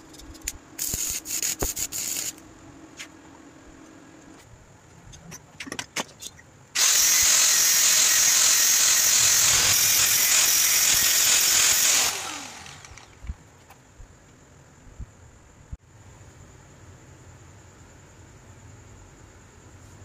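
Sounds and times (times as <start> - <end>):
angle grinder grinding metal: 6.8 - 13.2
grinder motor spinning down: 6.8 - 13.2.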